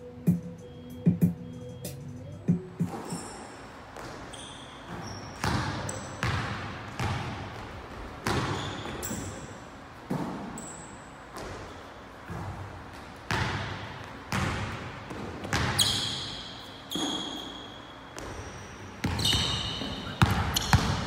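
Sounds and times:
sneakers squeaking: 0:00.2 - 0:21.0
basketball bouncing on wooden floor: 0:04.0 - 0:09.4, 0:12.3 - 0:16.3, 0:18.2 - 0:21.0.

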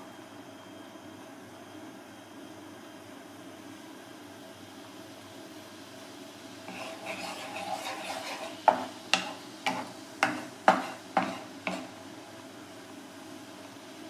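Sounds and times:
liquid bubbling in a pan: 0:05.4 - 0:14.0
spatula knocking against a pan: 0:06.7 - 0:11.9
spatula scraping a pan: 0:06.7 - 0:12.0.

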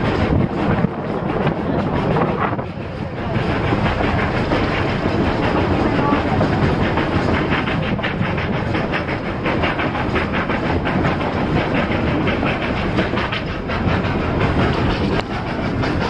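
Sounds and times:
steel wheels clattering on rail: 0:00.0 - 0:16.0
rapid irregular wheel clicks: 0:03.3 - 0:16.0.

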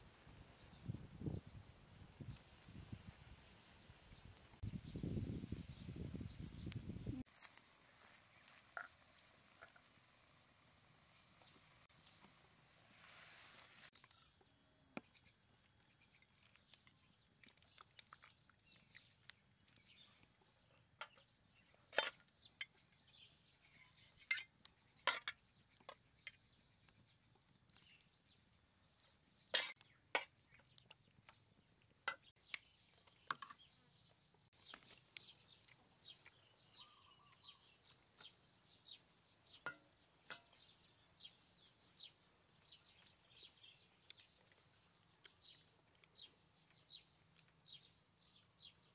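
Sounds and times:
bird chirping: 0:13.9 - 0:48.9.

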